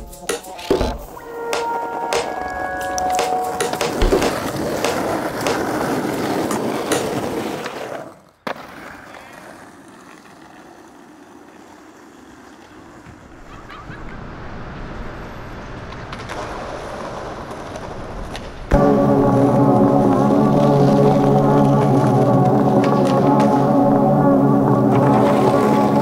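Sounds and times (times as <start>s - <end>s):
skateboard clacks: 3.0s - 14.1s, 15.9s - 23.7s
skateboard wheels rolling on asphalt: 3.6s - 26.0s.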